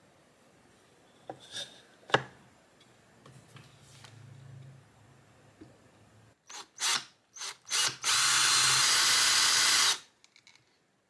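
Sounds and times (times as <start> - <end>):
cordless drill boring wood: 6.5 - 10.0.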